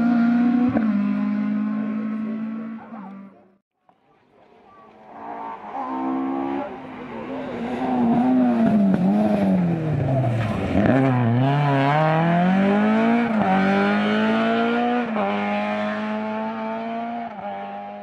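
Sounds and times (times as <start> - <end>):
rally car engine revving hard: 0.0 - 3.3, 7.5 - 18.0.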